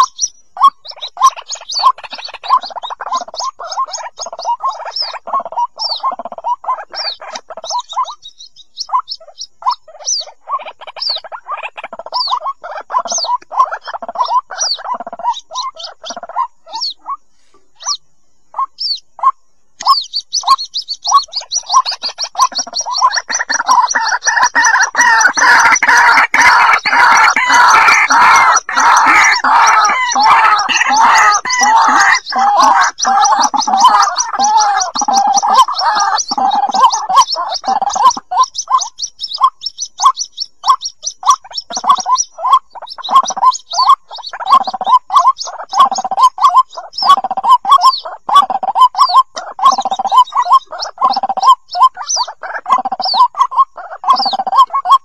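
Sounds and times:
bird chicks calling: 0.0 - 55.0.

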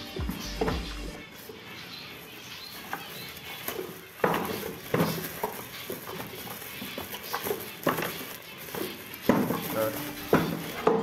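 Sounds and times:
wooden boxes knocking together: 4.2 - 6.4, 7.0 - 11.0.

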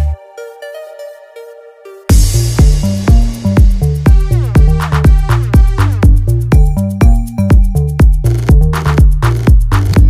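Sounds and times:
electronic dance music: 0.0 - 10.0
heavy kick drum: 2.1 - 10.0.

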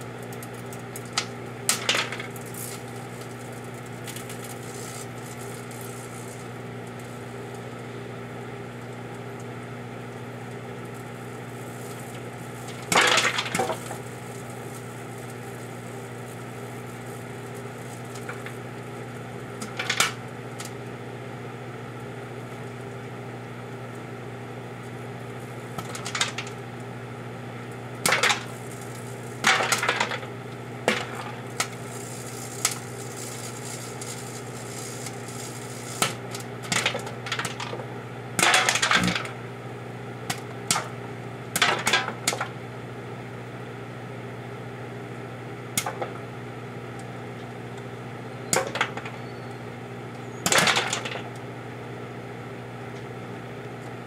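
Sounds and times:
popcorn popping: 0.0 - 20.9, 25.5 - 27.0, 27.6 - 39.4, 40.2 - 42.6, 45.7 - 46.3, 46.9 - 49.4, 50.1 - 51.5
microwave oven humming: 0.0 - 54.0.

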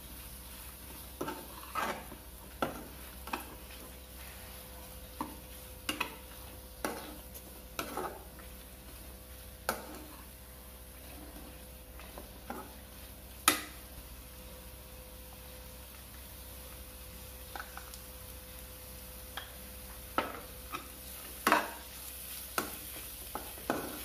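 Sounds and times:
faint sizzle: 0.0 - 24.0
metal spoon scraping a pan: 1.2 - 8.4, 9.6 - 10.3.

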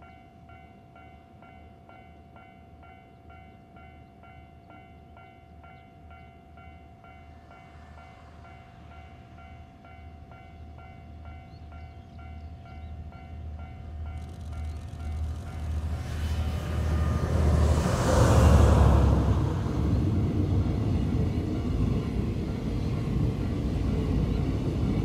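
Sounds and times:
diesel locomotive rumbling: 6.6 - 25.0.

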